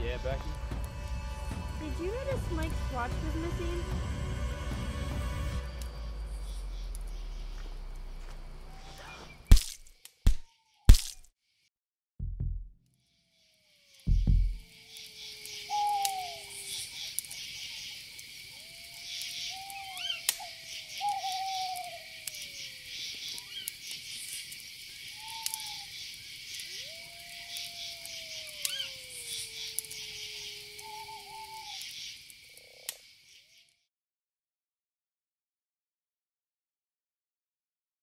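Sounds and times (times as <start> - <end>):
insects chirping: 0.0 - 11.2, 13.0 - 33.8
whistled animal calls: 8.6 - 9.5, 15.1 - 18.0, 18.6 - 23.8, 25.1 - 32.2.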